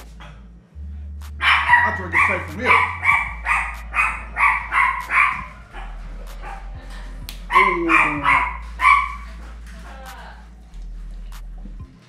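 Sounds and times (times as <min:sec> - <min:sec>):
dog barking: 0:01.4 - 0:06.8, 0:07.5 - 0:09.4.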